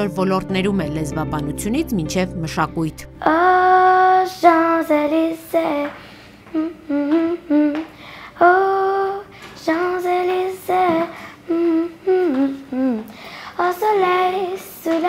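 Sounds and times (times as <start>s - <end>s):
girl singing unaccompanied: 3.1s - 15.0s.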